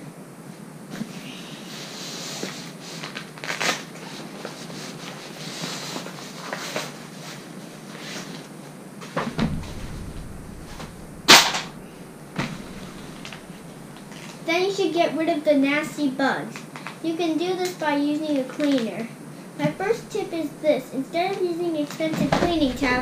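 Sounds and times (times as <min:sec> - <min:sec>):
loud sharp snap: 0:09.3 - 0:14.2
low thump: 0:09.3 - 0:14.2, 0:19.6 - 0:20.6, 0:22.2 - 0:23.0.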